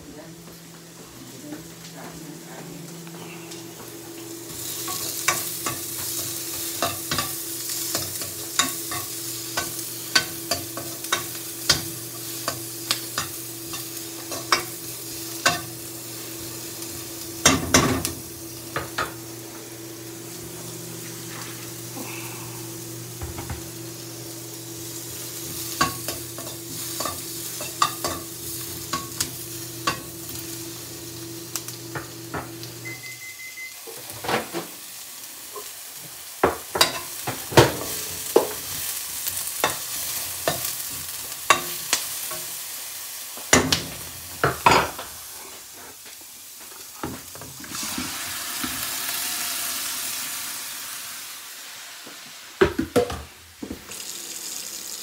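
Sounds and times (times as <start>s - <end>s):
onion and garlic sizzling in a pan: 2.8s - 55.0s
short beep: 32.8s - 33.8s.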